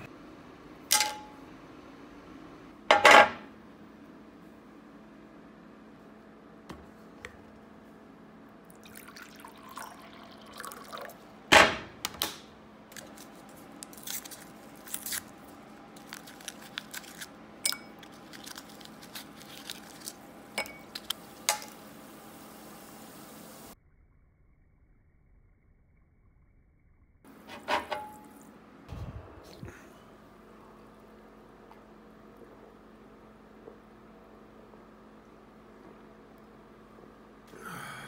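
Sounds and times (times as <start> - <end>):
foil packet crackling: 12.9 - 21.5.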